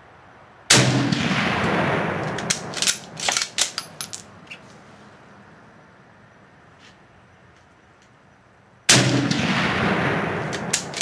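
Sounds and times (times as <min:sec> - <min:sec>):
rifle shot echo: 0:00.7 - 0:03.8, 0:08.9 - 0:11.0
rifle bolt metallic clacks: 0:02.2 - 0:04.3, 0:10.4 - 0:11.0.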